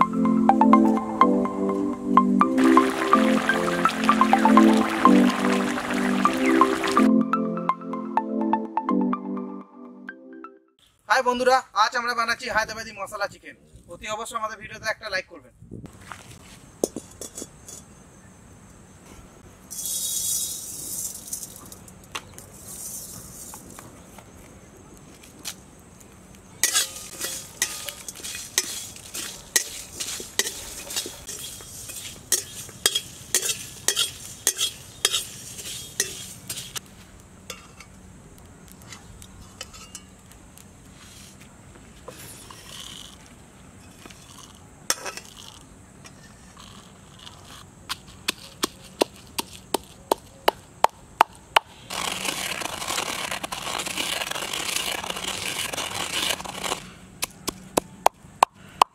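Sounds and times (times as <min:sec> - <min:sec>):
steady sizzling hiss: 0:02.5 - 0:07.0, 0:15.9 - 0:48.3
metal spatula scraping a pan: 0:26.6 - 0:36.8.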